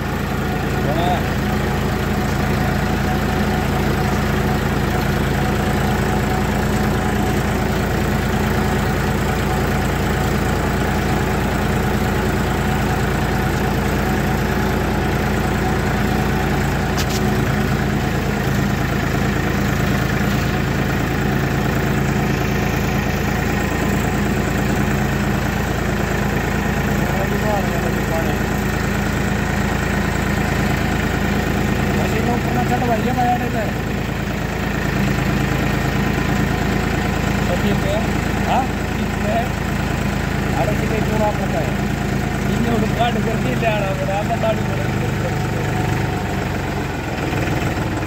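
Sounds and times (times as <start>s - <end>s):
diesel tractor engine running: 0.0s - 48.0s.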